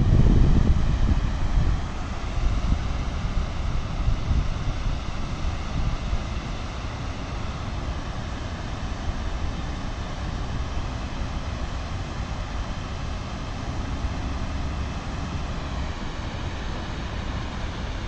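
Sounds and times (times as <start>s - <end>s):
wind rumble on microphone: 0.0s - 18.0s
river water pouring over dam: 0.1s - 18.0s.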